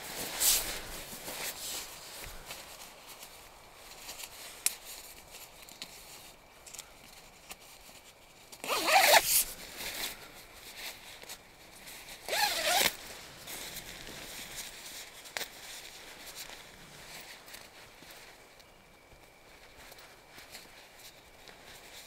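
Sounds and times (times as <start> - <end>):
zipper pulled: 8.6 - 9.5, 12.3 - 13.0.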